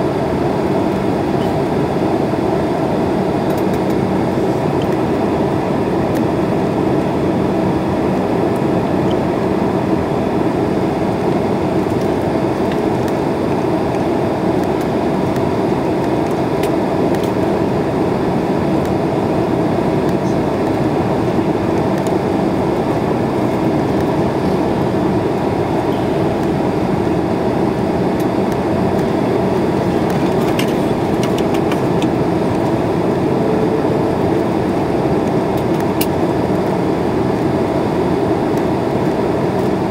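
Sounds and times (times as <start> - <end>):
airliner cabin roar: 0.0 - 39.9.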